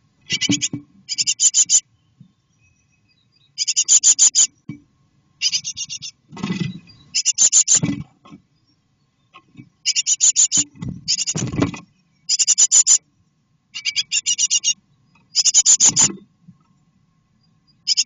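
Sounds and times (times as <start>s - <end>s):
nestlings begging chirps: 0.2s - 4.6s, 5.4s - 7.9s, 8.6s - 13.0s, 13.7s - 16.1s, 17.4s - 18.0s.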